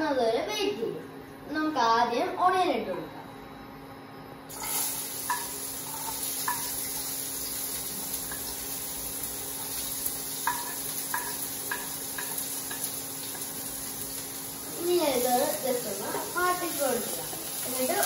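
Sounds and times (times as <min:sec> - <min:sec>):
onion sizzling in a frying pan: 0:04.5 - 0:18.0
spatula tapping: 0:05.3 - 0:06.8, 0:10.4 - 0:13.6.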